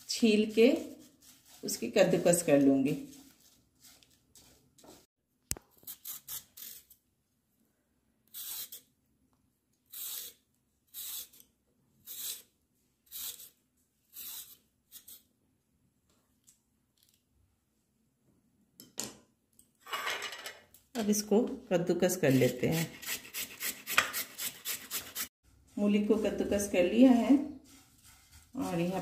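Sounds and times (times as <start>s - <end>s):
vegetable peeler scraping radish: 0.0s - 4.9s, 5.7s - 7.0s, 8.3s - 8.9s, 9.8s - 15.3s, 22.1s - 29.0s.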